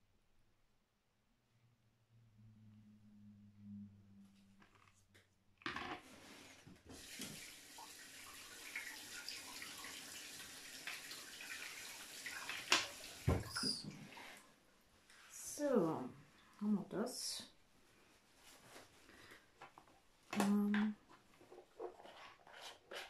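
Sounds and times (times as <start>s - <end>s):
tap water running: 6.5s - 14.4s.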